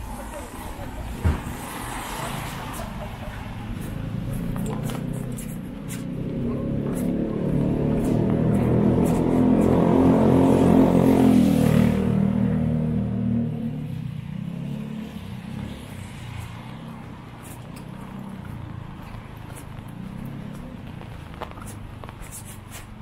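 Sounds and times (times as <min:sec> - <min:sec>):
vehicle engine passing on wet street: 0:00.1 - 0:05.3, 0:05.9 - 0:22.8.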